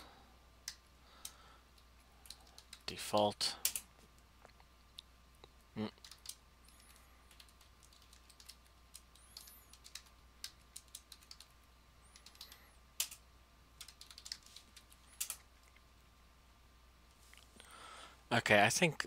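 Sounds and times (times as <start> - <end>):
computer keyboard typing: 0.6 - 3.0, 3.6 - 3.9, 5.9 - 13.2, 13.8 - 15.5.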